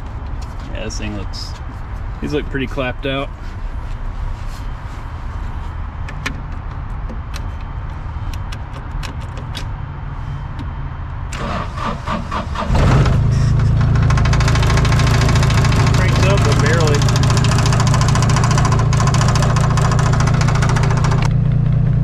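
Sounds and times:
low engine rumble: 0.0s - 22.0s
heavy engine cranking and running: 11.3s - 21.4s.

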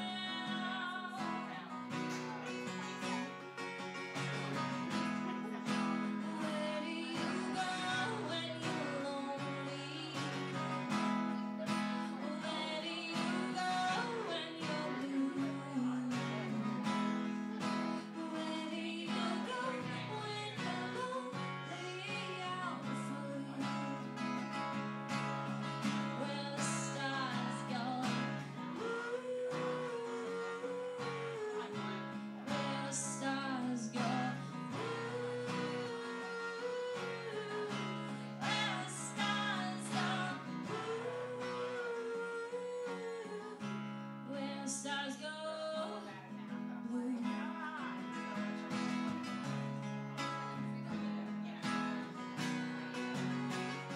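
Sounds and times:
woman singing a slow ballad: 0.0s - 1.9s, 6.1s - 11.1s, 11.7s - 16.9s, 18.0s - 24.2s, 26.0s - 46.2s, 46.8s - 48.2s
strummed acoustic guitar: 0.0s - 53.9s.

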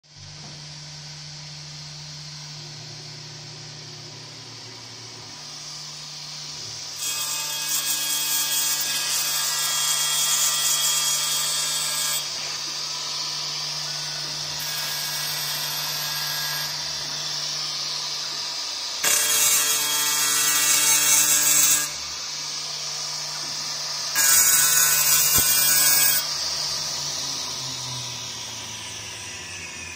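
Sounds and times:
machine spindle humming and hissing: 0.1s - 29.9s
tool grinding glass: 6.9s - 13.2s, 13.8s - 17.1s, 19.0s - 22.0s, 23.3s - 26.8s.

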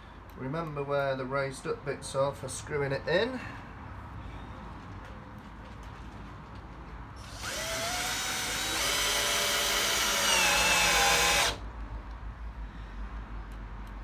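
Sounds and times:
cordless drill driving screw: 7.2s - 11.6s.

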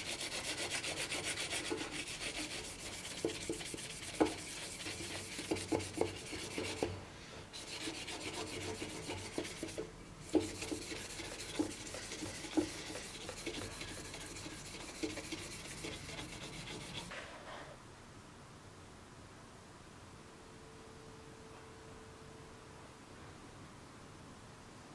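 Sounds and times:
abrasive pad scrubbing metal: 0.0s - 7.0s, 7.6s - 17.1s.

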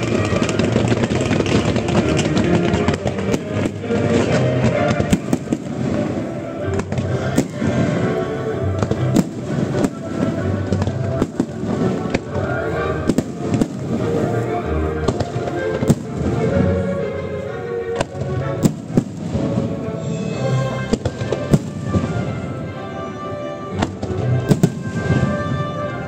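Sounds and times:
music: 0.0s - 26.0s.

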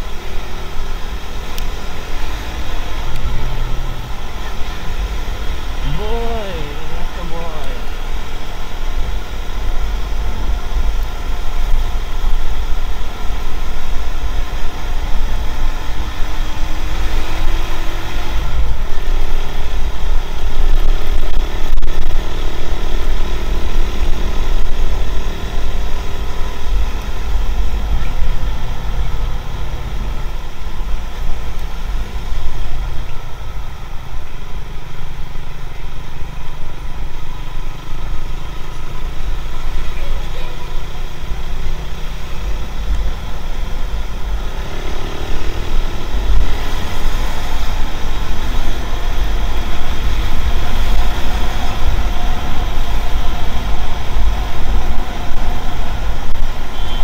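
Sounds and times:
motorcycle engine running: 0.0s - 57.0s
road noise: 0.0s - 57.0s.

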